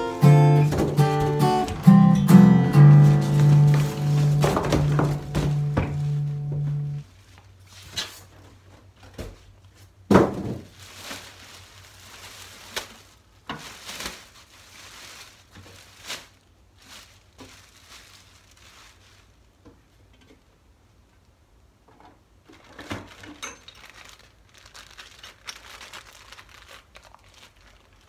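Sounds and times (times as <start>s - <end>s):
plastic wrapping crinkling: 0.0s - 8.4s, 10.5s - 19.6s, 22.4s - 28.0s
loud thunk: 4.4s - 6.0s, 10.1s - 10.6s.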